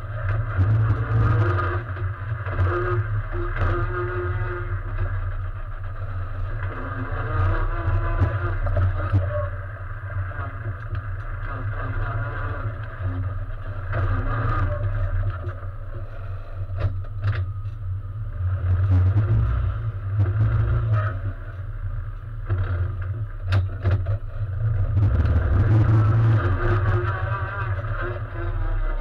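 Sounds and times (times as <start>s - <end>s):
race car engine rumbling: 0.0s - 29.0s.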